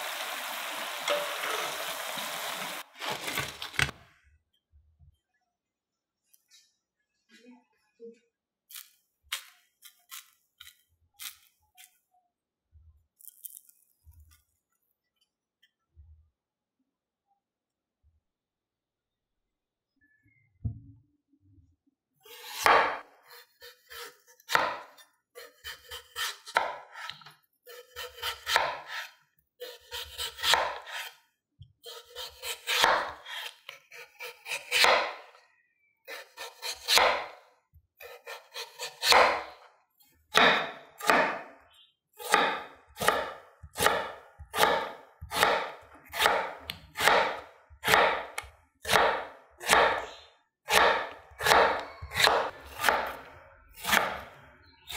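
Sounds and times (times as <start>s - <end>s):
knife cutting potato on wooden board: 22.2s - 31.2s, 31.8s - 35.4s, 36.1s - 37.4s, 38.0s - 39.6s, 40.3s - 41.5s, 42.2s - 54.3s.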